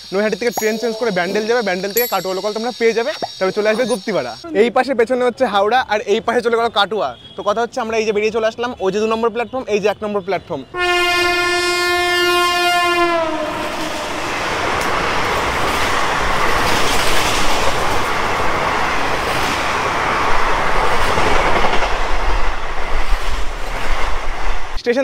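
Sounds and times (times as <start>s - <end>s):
train horn long note: 10.8s - 14.6s
train passing with rushing clatter: 10.8s - 24.8s
deep train rumble: 12.8s - 24.8s.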